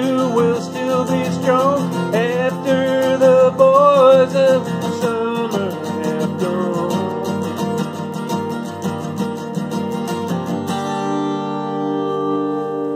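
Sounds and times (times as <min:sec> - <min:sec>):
man singing: 0:00.0 - 0:08.2
acoustic guitar strumming: 0:00.0 - 0:12.9.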